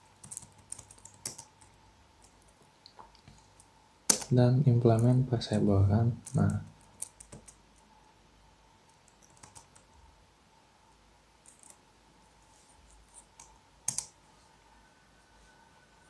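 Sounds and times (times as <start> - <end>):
keyboard keystrokes: 6.2 - 7.6, 13.3 - 14.2.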